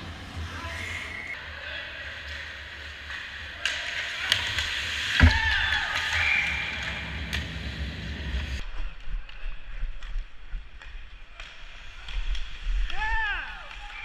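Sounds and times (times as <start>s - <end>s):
hockey sticks clicking: 2.2s - 7.9s, 8.8s - 14.0s.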